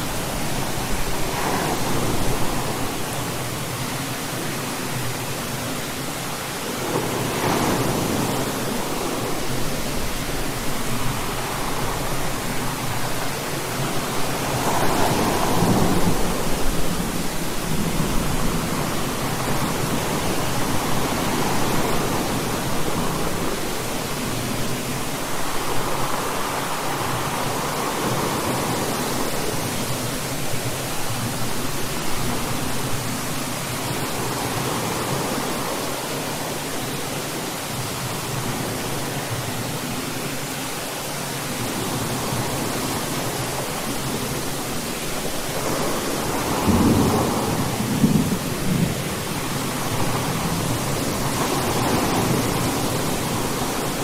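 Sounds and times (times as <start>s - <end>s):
rolling rumbles of thunder: 46.6s - 49.3s.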